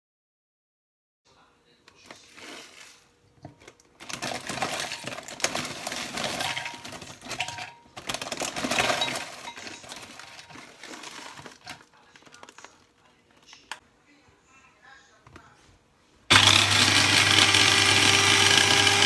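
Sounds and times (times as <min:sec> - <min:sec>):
bag rustling: 0:04.0 - 0:12.8
chips rattling onto glass: 0:04.0 - 0:12.8.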